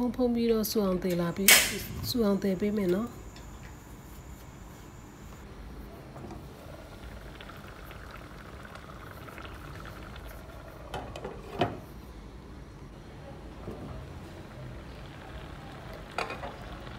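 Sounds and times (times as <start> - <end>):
water boiling in a pot: 5.8 - 12.1, 13.4 - 16.9.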